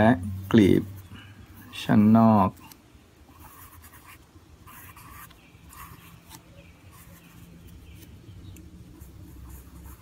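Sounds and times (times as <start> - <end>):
pencil scratching on paper: 3.3 - 8.2, 8.9 - 10.0
faint high chirping calls: 4.7 - 9.2.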